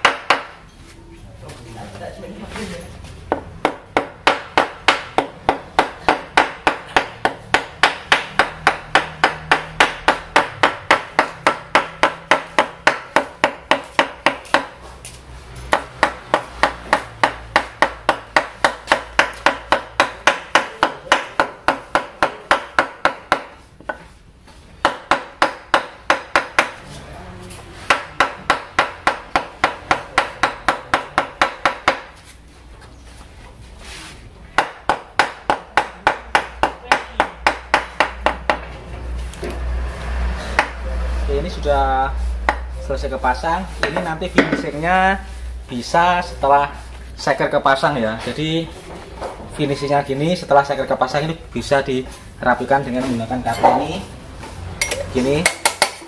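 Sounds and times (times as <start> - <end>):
wooden mallet tapping metal: 54.8 - 56.0.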